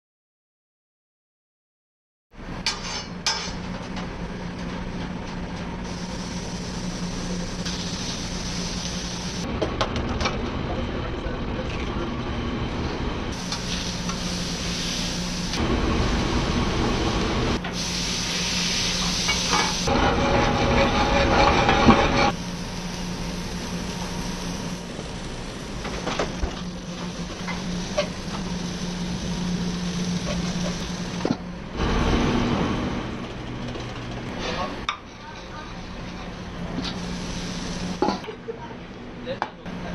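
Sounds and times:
steady low hum: 3.2s - 39.9s
food sizzling on griddle: 5.9s - 9.4s, 13.4s - 15.6s, 17.7s - 19.9s, 26.6s - 31.2s, 36.7s - 38.2s.

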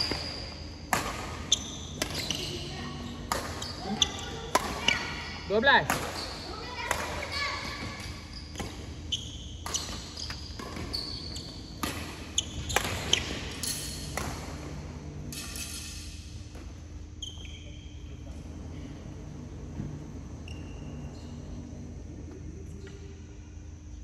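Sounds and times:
rackets hitting shuttlecock: 0.0s - 2.6s, 3.2s - 5.2s, 5.8s - 8.9s, 11.7s - 16.7s
shoes squeaking on court floor: 0.0s - 5.2s, 5.8s - 15.8s, 16.5s - 23.1s.

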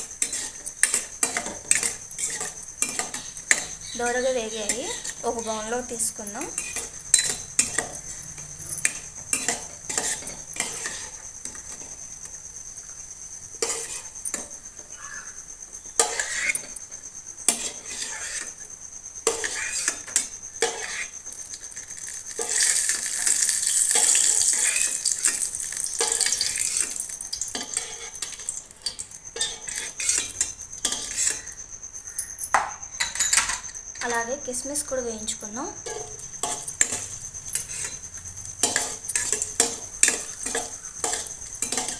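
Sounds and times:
metal spoon scraping a pan: 0.0s - 12.0s, 13.5s - 15.2s, 15.9s - 41.9s
nuts sizzling in fat: 0.0s - 32.2s, 33.7s - 41.9s.

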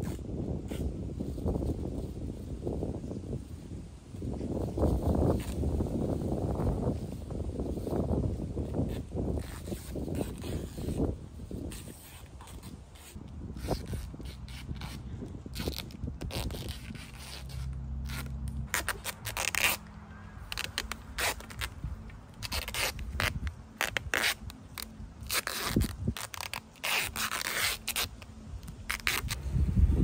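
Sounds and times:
adhesive tape ripping off roll: 0.0s - 0.9s, 5.3s - 5.9s, 8.8s - 29.5s.

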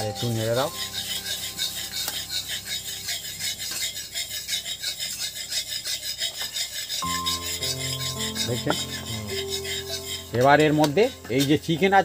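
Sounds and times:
background music: 0.0s - 3.7s, 7.0s - 12.0s
metal spatula scraping iron pan: 0.0s - 12.0s.

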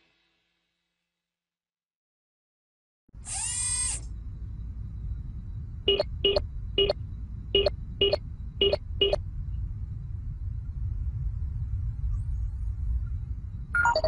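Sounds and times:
low rumbling drone: 3.6s - 14.0s
short keypad beeps: 13.8s - 14.0s.

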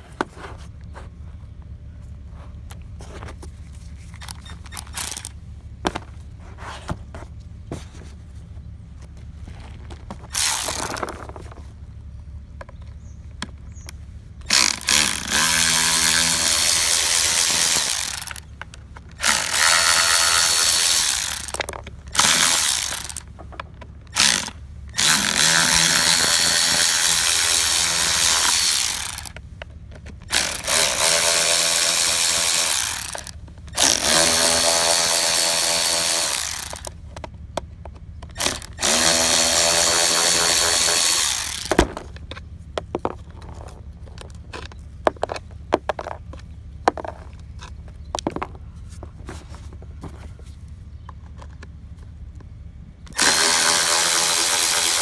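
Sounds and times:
electric ratchet motor whine: 4.2s - 5.3s, 10.3s - 11.1s, 14.5s - 18.4s, 19.2s - 23.3s, 24.1s - 29.4s, 30.3s - 36.9s, 38.3s - 41.8s, 53.1s - 55.0s.

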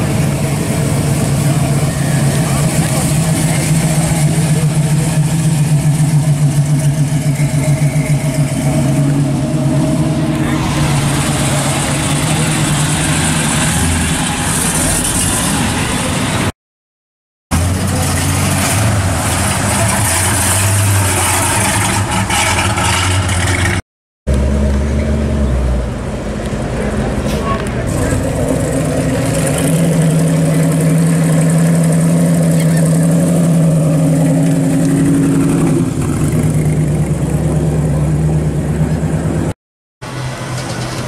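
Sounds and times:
car engine exhaust rumbling: 0.0s - 15.0s.

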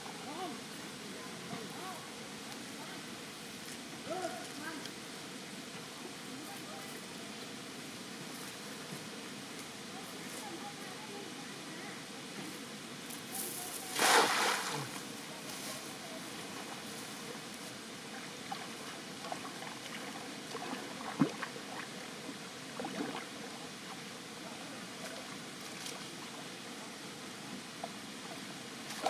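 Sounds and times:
net splashing into water: 13.8s - 15.0s
small splashes and drips: 18.4s - 22.1s.

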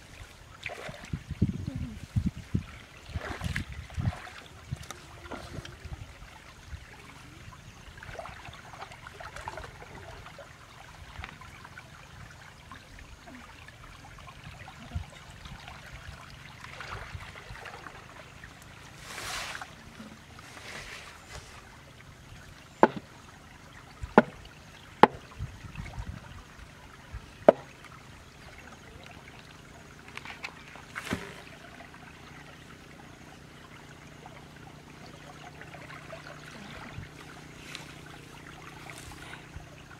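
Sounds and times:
water splashing and trickling: 0.0s - 39.9s
grass rustling: 18.9s - 21.7s, 30.4s - 31.5s, 37.2s - 39.5s
sharp knocks: 22.8s - 23.0s, 24.2s - 24.4s.

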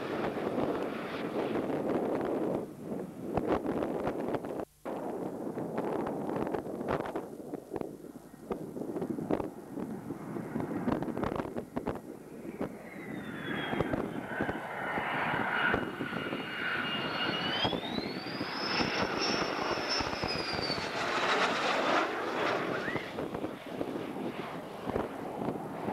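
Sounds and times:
jet engine whine: 0.0s - 25.9s
wind buffeting microphone: 0.0s - 25.9s
rushing jet noise: 10.4s - 25.9s.

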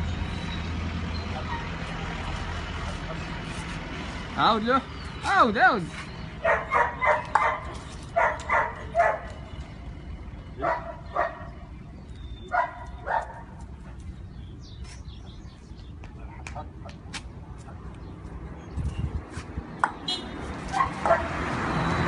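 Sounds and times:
dog barking: 6.4s - 9.3s, 10.6s - 11.5s, 12.5s - 13.6s, 20.7s - 21.4s.

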